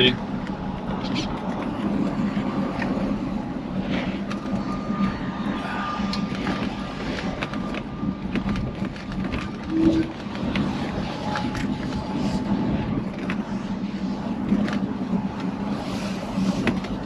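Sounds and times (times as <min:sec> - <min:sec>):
road noise: 0:00.0 - 0:17.0
brief low tone: 0:09.7 - 0:10.1.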